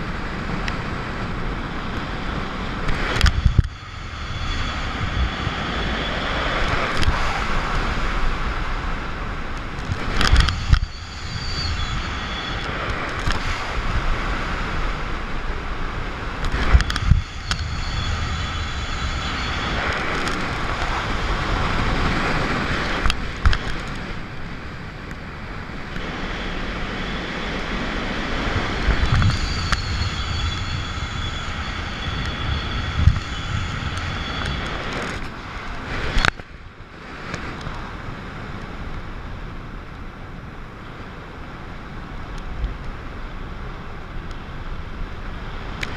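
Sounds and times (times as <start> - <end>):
wind rushing over microphone: 0.0 - 45.9
faint high whistle: 10.5 - 12.9, 17.2 - 20.0, 29.0 - 34.9.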